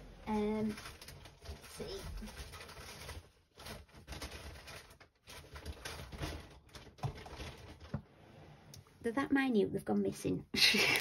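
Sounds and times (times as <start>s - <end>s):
cellophane packets rustling: 0.1s - 8.1s.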